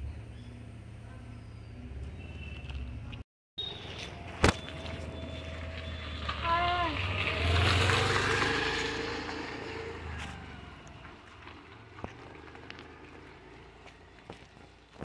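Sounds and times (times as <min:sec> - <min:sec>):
vehicle engine passing by: 0:03.8 - 0:15.0.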